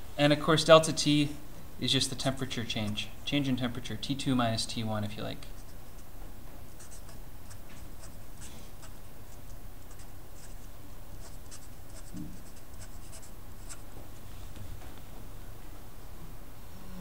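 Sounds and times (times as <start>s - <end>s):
low steady hum: 0.0s - 17.0s
marker scratching on paper: 5.5s - 6.1s, 6.7s - 13.9s.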